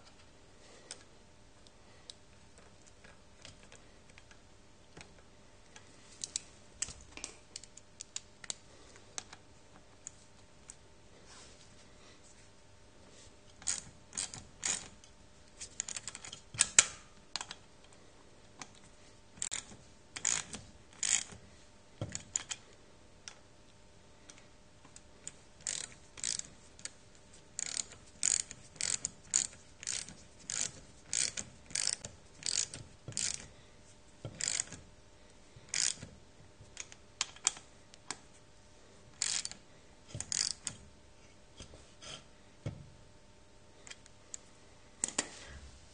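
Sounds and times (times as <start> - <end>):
ratchet wrench clicking: 13.6 - 14.9, 19.4 - 21.4, 25.6 - 26.9, 27.6 - 33.5, 34.3 - 34.8, 35.7 - 36.1, 39.2 - 39.6, 40.2 - 40.8.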